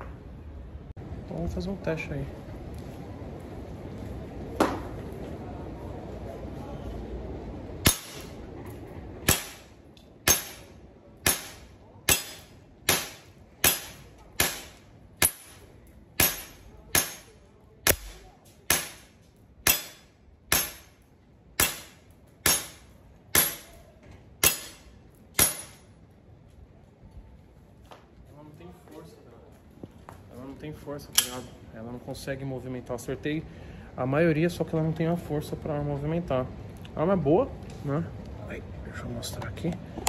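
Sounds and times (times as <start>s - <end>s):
airsoft pistol sharp cracks: 7.8s - 8.4s, 9.2s - 9.7s, 10.3s - 15.6s, 16.2s - 20.9s.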